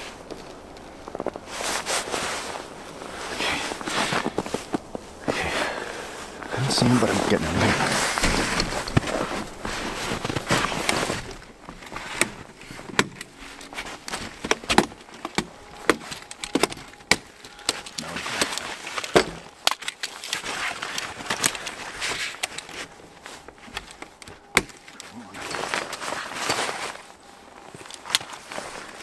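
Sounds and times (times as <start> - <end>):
tarp and camping gear rustling: 0.0 - 29.0.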